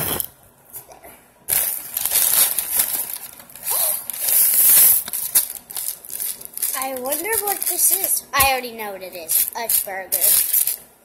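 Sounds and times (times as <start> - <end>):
paper bag rustling: 1.5 - 8.2.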